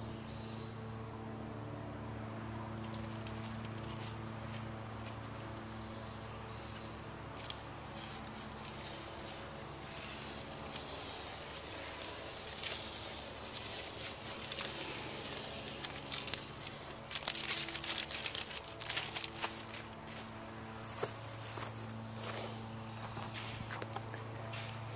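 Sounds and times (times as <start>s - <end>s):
nylon strap rustling and scraping: 7.4s - 19.9s
footsteps scuffing: 18.9s - 24.8s.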